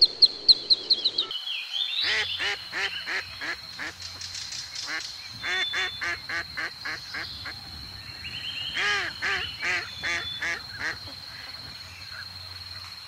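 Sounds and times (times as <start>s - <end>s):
geese honking: 8.8s - 11.0s.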